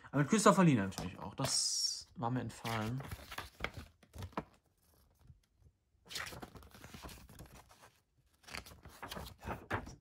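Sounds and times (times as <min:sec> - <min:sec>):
paper pages rustling: 0:02.5 - 0:10.0.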